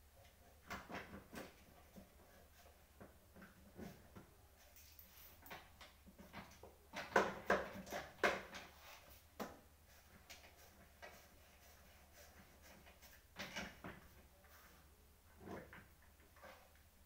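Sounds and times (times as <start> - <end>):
chair frames knocking and rattling: 5.7 - 8.7, 13.3 - 14.2.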